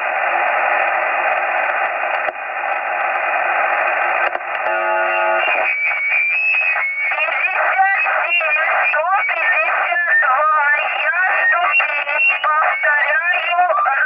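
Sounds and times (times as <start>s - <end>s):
radio hiss and static: 0.0s - 14.0s
garbled radio signals: 3.5s - 14.0s
buzzy tone: 4.7s - 5.6s.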